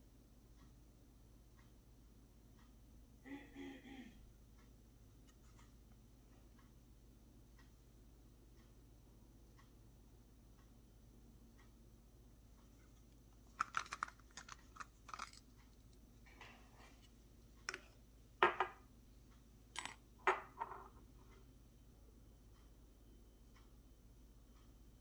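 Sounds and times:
glass bottle parts clicking: 13.5 - 15.5, 19.8 - 20.8
plastic funnel fitted into bottle: 13.6 - 15.4.

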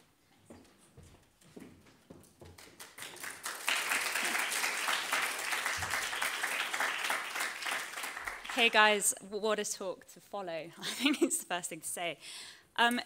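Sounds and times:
audience applause: 2.6 - 8.8.

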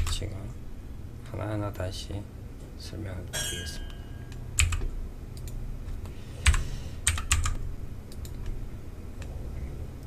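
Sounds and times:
low steady hum: 0.0 - 10.0
keyboard and mouse clicking: 4.6 - 5.6, 6.4 - 8.6.

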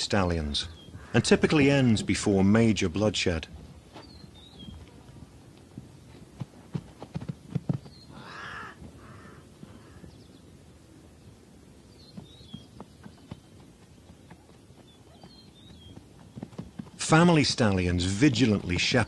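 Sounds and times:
hooves thudding on dry ground: 3.4 - 10.2, 11.8 - 19.0
zebra barking call: 8.1 - 10.0.

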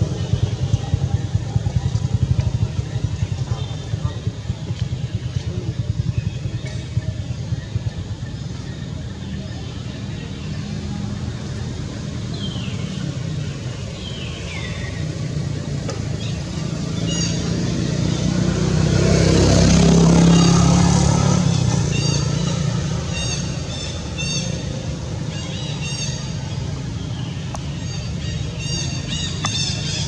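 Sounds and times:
motor vehicle passing: 10.2 - 30.0.

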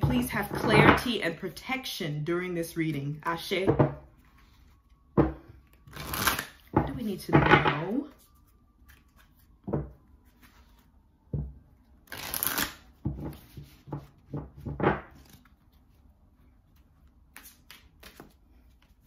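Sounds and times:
cards shuffled by hand: 12.1 - 13.8, 16.8 - 19.0.

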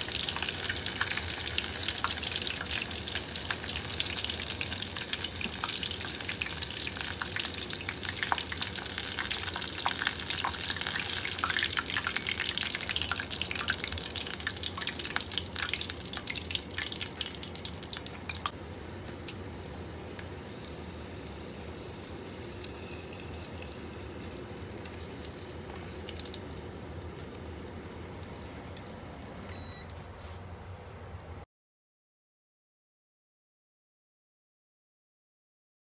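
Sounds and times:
deep-frying sizzle with crackles: 0.0 - 31.4.

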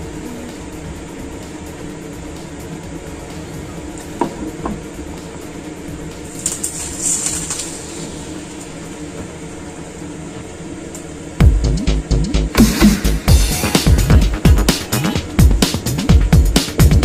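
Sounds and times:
low mechanical hum: 0.0 - 17.0
electronic music with heavy beat: 11.4 - 17.0.

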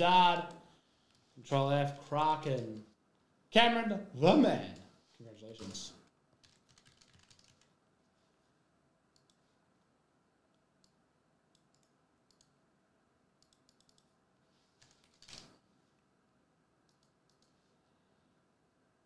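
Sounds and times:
computer keyboard clicks: 6.4 - 7.7, 11.6 - 12.6, 13.4 - 14.1, 14.8 - 15.5.

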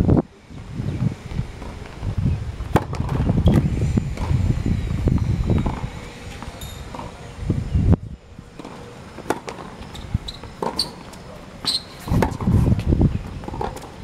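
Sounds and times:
wind buffeting microphone: 0.0 - 8.6, 10.0 - 10.6, 12.0 - 14.0
tennis ball bouncing on hard court: 5.6 - 7.1, 8.6 - 12.6, 13.3 - 14.0.

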